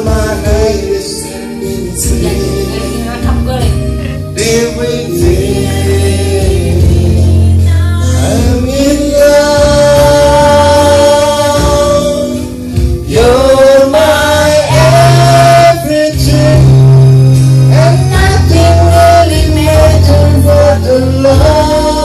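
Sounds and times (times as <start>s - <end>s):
man singing into microphone: 0.0s - 3.3s, 3.9s - 22.0s
karaoke backing track: 0.0s - 22.0s.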